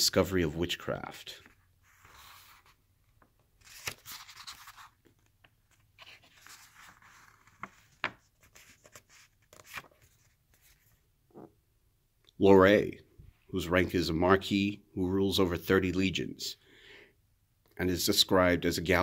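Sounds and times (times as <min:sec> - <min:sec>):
paper rustling: 0:01.4 - 0:11.0.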